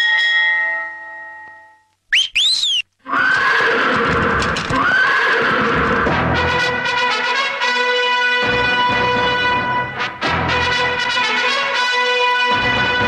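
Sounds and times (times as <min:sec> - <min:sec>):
sliding whistle: 0:02.1 - 0:03.8
horse whinnying: 0:02.5 - 0:06.2.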